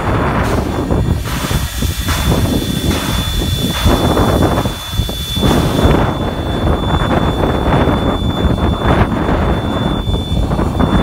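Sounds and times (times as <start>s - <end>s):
steam locomotive hissing: 0.0s - 11.0s
wind buffeting microphone: 0.0s - 11.0s
thin high-pitched tone: 2.3s - 11.0s.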